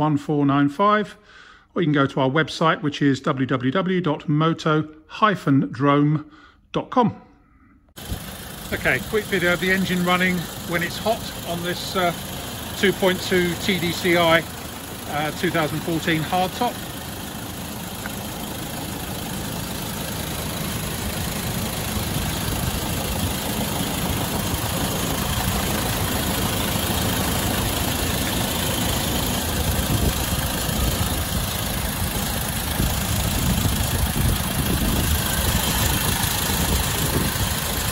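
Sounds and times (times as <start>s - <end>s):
diesel engine idling: 8.0s - 37.9s.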